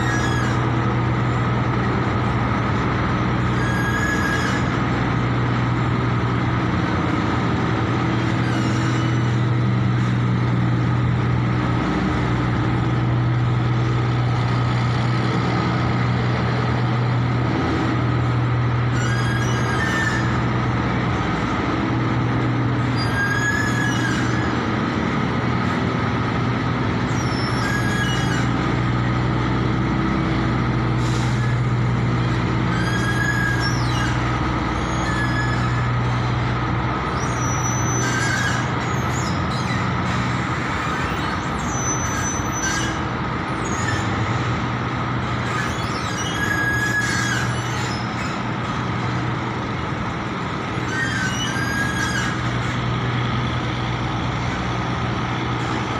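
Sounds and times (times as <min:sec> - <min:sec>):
boat engine droning: 0:00.0 - 0:55.9
short high chirps and squeaks: 0:03.4 - 0:04.8, 0:18.9 - 0:20.4, 0:37.1 - 0:39.9, 0:40.9 - 0:43.0, 0:45.5 - 0:48.4.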